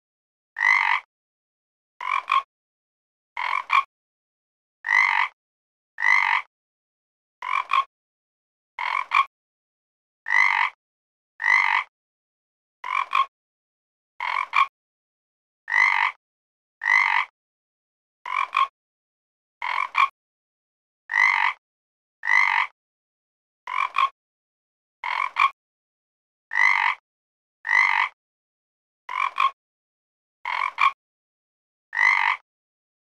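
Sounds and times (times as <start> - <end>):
frog croaking: 0.6 - 1.1, 2.0 - 2.5, 3.4 - 3.9, 4.8 - 5.4, 6.0 - 6.5, 7.4 - 7.9, 8.8 - 9.3, 10.3 - 10.8, 11.4 - 11.9, 12.8 - 13.3, 14.2 - 14.7, 15.7 - 16.2, 16.8 - 17.3, 18.3 - 18.7, 19.6 - 20.1, 21.1 - 21.6, 22.2 - 22.7, 23.7 - 24.2, 25.0 - 25.6, 26.5 - 27.0, 27.7 - 28.2, 29.1 - 29.6, 30.5 - 31.0, 31.9 - 32.4.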